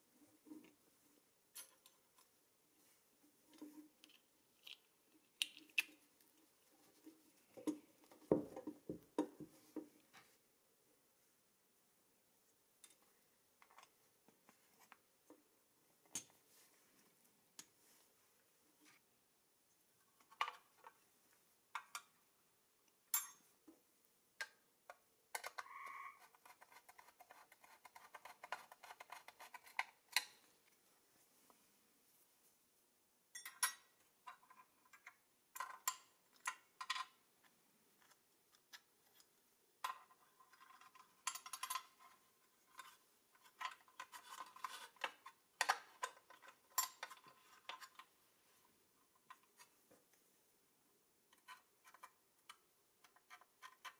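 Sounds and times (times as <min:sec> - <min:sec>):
small parts clicking and tapping: 0:03.5 - 0:06.4, 0:24.4 - 0:30.5, 0:33.4 - 0:48.2, 0:51.3 - 0:53.9.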